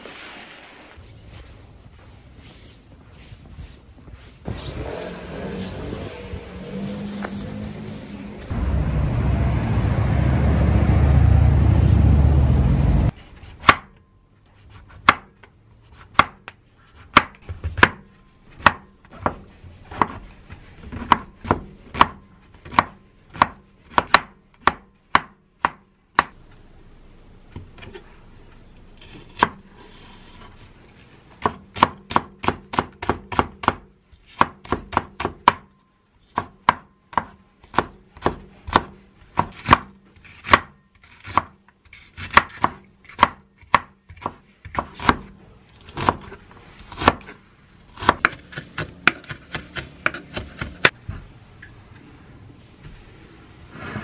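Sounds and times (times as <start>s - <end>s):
knife chopping on wooden board: 36.4s - 41.5s, 42.2s - 45.3s, 45.9s - 51.0s.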